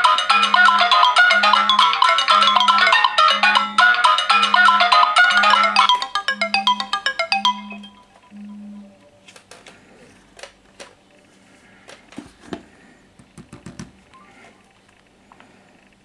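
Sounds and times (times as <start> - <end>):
phones clicking and tapping: 0.0 - 8.6, 11.8 - 14.2
marimba-like phone alarm melody: 0.0 - 9.0.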